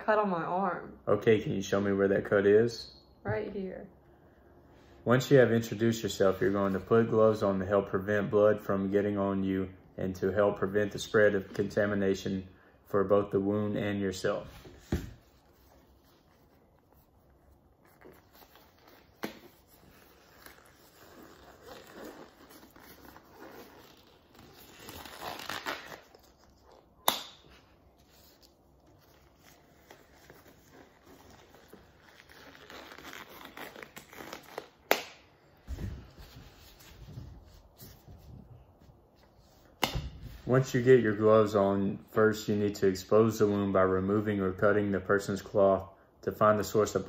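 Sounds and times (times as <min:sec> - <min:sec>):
rubber gloves rustling and stretching: 0:13.2 - 0:40.9
glove cuffs snapping: 0:19.1 - 0:19.7, 0:20.4 - 0:27.7, 0:32.6 - 0:35.4, 0:39.8 - 0:40.2.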